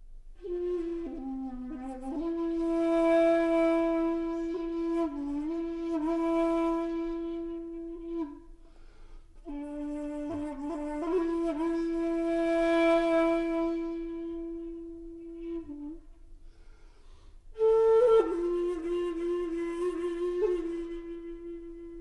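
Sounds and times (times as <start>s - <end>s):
solo wind instrument long notes: 0.4s - 16.8s, 17.5s - 22.0s.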